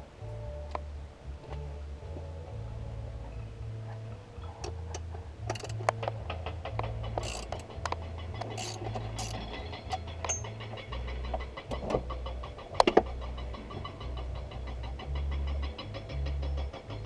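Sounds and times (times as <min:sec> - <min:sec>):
low uneven rumble: 0:00.0 - 0:17.0
metallic clicks of hand tools: 0:04.6 - 0:10.6.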